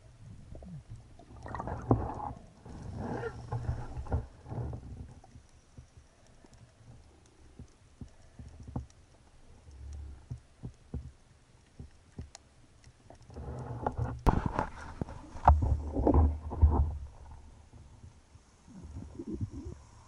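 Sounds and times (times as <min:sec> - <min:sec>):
underwater low rumble: 0:00.0 - 0:12.3, 0:13.1 - 0:20.0
underwater clicks and knocks: 0:00.5 - 0:09.0, 0:09.7 - 0:18.2
rushing water: 0:01.2 - 0:04.2.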